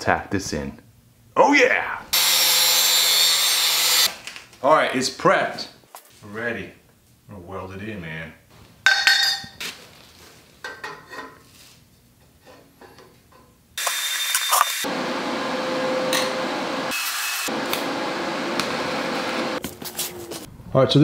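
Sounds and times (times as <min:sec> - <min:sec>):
welding arc crackling hiss: 0:13.8 - 0:14.9.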